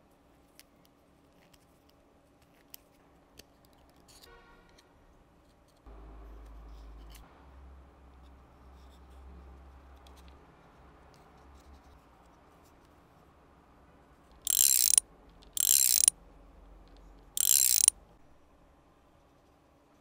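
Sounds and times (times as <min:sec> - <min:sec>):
wooden ratchet clicking rapidly: 0:14.5 - 0:15.0, 0:15.6 - 0:16.1, 0:17.4 - 0:17.9.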